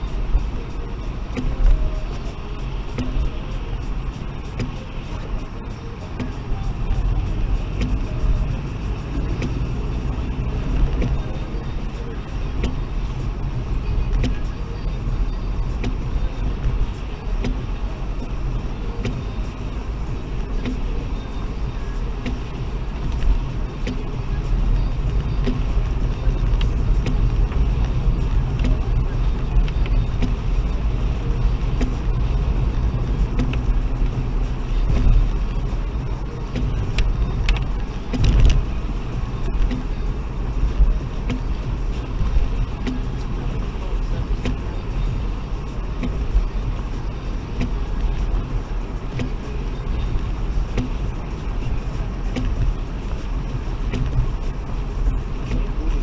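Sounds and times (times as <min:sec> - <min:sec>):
car engine and tyre rumble: 0:00.0 - 0:56.0
light ticks: 0:06.0 - 0:18.3, 0:20.4 - 0:40.0, 0:40.7 - 0:45.2, 0:49.1 - 0:56.0.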